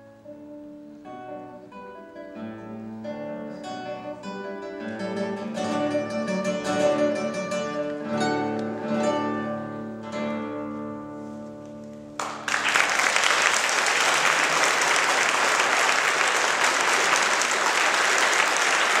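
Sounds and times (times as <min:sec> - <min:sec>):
classical guitar chord ringing: 0:00.0 - 0:12.4
audience applause: 0:12.2 - 0:19.0.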